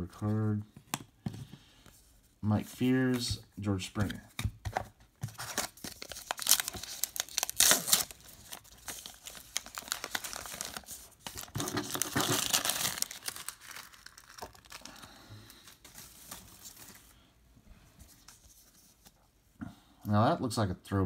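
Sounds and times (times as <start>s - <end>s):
cards rustling: 2.6s - 17.1s
wrapper tearing and crinkling: 5.5s - 15.0s.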